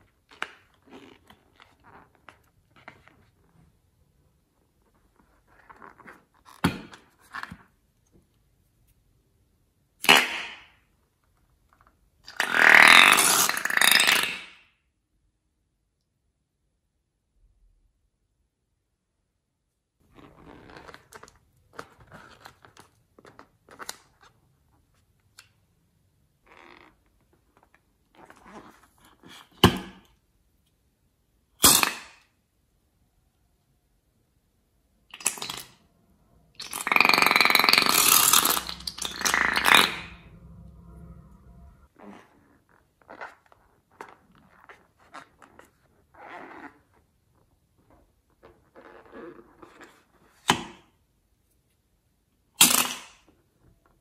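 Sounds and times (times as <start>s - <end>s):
balloon squelching sputter: 36.6s - 40.0s.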